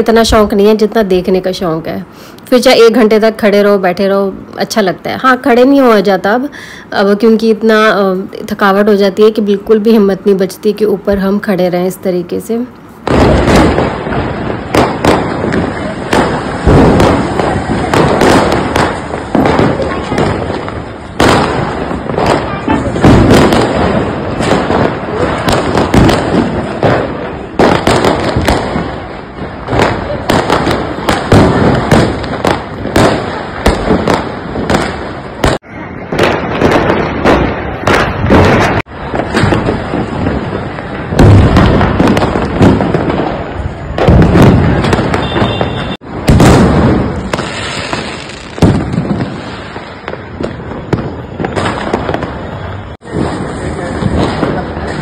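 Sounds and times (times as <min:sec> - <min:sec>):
firecrackers crackling: 0:00.0 - 0:55.0
sharp firework bangs: 0:13.0 - 0:55.0.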